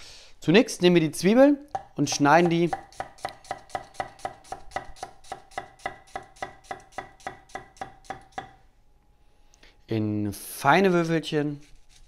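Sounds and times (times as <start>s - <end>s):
knife chopping on wooden board: 1.7s - 8.6s.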